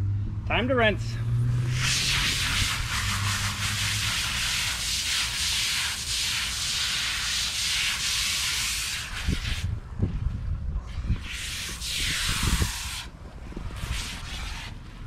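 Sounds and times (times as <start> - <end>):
hose nozzle spraying water: 1.6 - 9.7, 11.1 - 13.1, 13.7 - 14.8.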